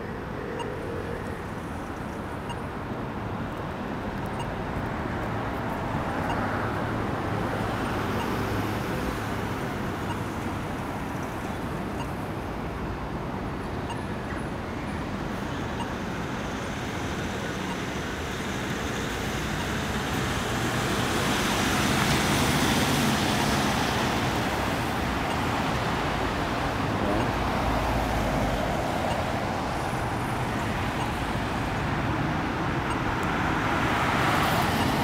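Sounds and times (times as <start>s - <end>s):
cars driving past: 15.8s - 35.0s.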